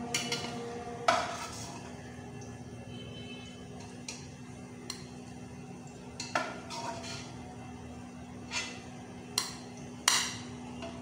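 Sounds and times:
metal utensil clinking on pot: 6.2s - 7.3s.

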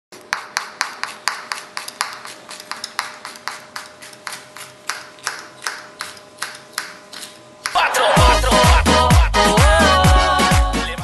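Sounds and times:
knife chopping on cutting board: 0.2s - 7.8s.

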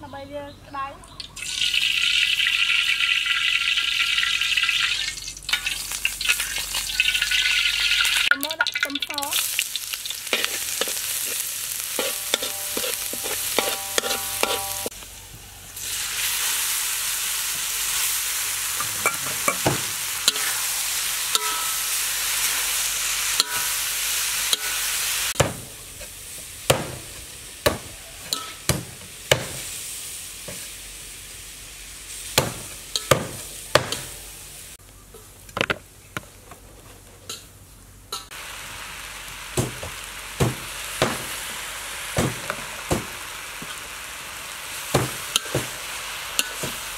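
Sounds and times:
food sizzling in hot oil: 1.2s - 34.8s, 38.2s - 46.9s
metal spatula scraping wok: 10.0s - 14.9s, 18.6s - 25.0s, 46.3s - 46.9s
spatula knocking on wok: 12.0s - 14.9s.

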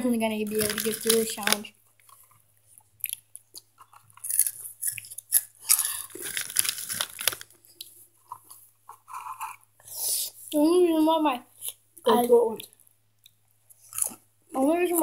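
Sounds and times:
crisp chips being chewed: 0.5s - 9.5s, 12.7s - 14.2s.

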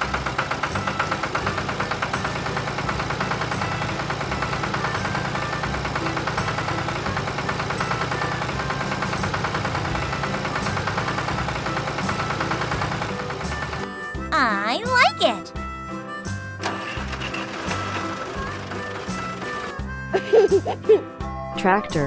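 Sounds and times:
chugging engine sound effect: 0.0s - 15.4s, 16.2s - 20.1s.

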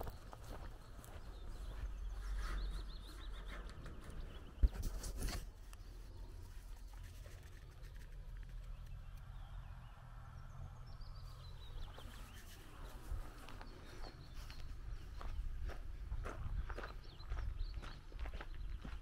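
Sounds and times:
footsteps on gravel: 0.0s - 3.0s, 11.8s - 19.0s
faint birds chirping: 0.0s - 19.0s.

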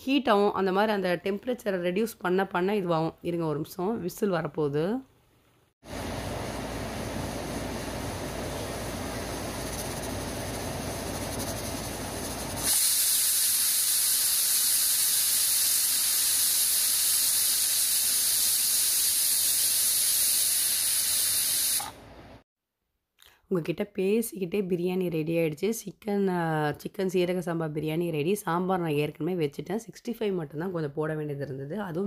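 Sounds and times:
pressure cooker steam hissing: 8.7s - 22.0s.

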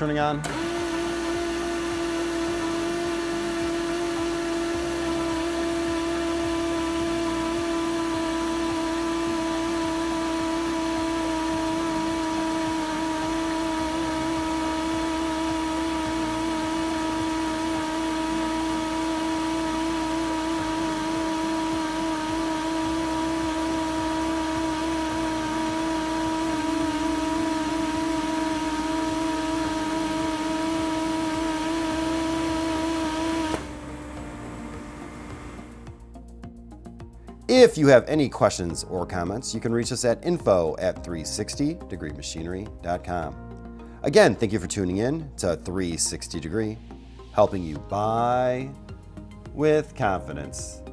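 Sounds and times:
air compressor whining: 0.0s - 36.1s.

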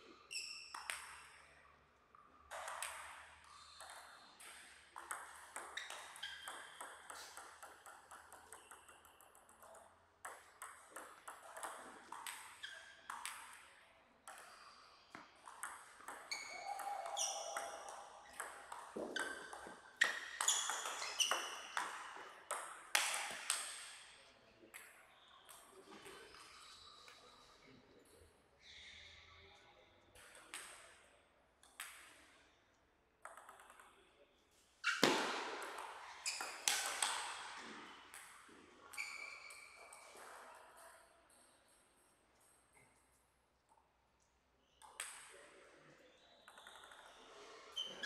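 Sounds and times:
table tennis ball hits: 0.7s - 1.5s, 2.5s - 13.7s, 15.2s - 24.0s, 34.9s - 38.6s.

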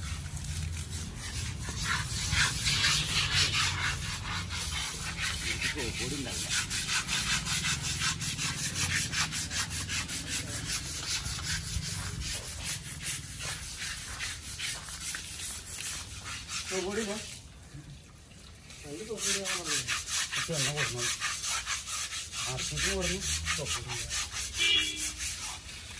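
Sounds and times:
scrubbers rasping on wet hide: 0.0s - 17.5s, 18.6s - 25.9s.

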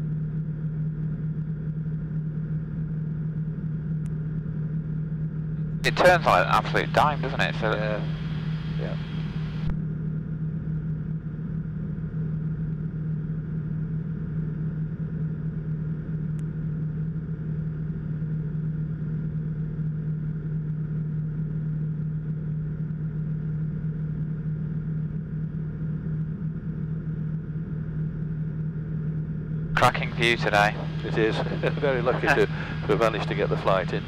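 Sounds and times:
aircraft engine droning in cockpit: 0.0s - 34.0s.

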